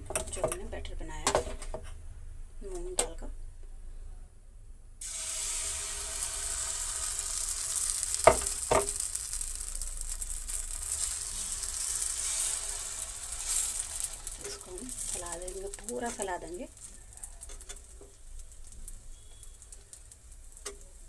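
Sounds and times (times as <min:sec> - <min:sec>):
batter sizzling in a pan: 0:05.0 - 0:21.0.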